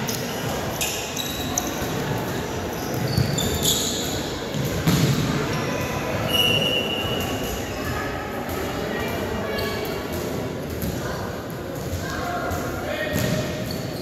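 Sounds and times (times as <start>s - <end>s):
sneakers squeaking: 0.0s - 8.0s, 9.4s - 11.2s, 11.8s - 14.0s
spectators talking: 0.0s - 14.0s
ball kicked and bouncing: 4.5s - 5.2s.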